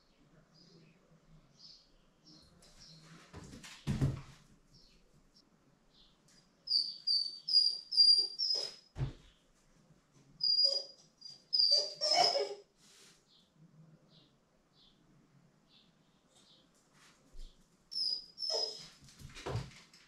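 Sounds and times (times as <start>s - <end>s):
dog landing with a thump: 3.5s - 4.4s, 9.0s - 9.3s
dog whining: 7.1s - 8.8s, 10.4s - 12.7s, 18.0s - 19.0s.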